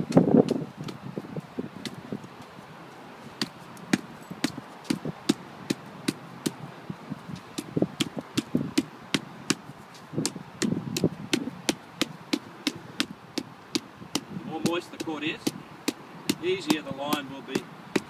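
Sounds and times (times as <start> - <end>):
dull thuds: 7.4 - 18.0
tamping tool tapping on clay: 10.2 - 18.0.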